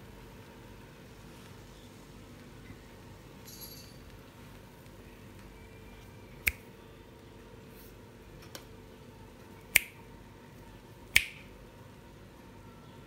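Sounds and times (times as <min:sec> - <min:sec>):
finger snaps: 0:06.4 - 0:06.7, 0:09.7 - 0:10.0, 0:11.1 - 0:11.5.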